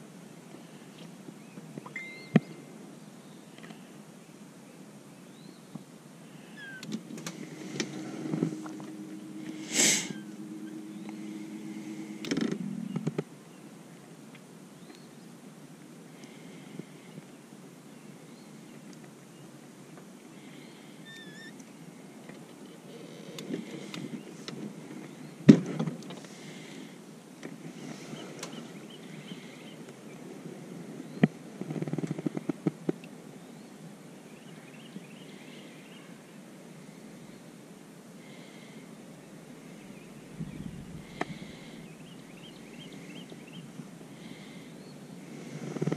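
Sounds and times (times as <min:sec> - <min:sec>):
faint birds chirping: 0:00.1 - 0:25.5, 0:26.1 - 0:32.5, 0:33.2 - 0:45.9.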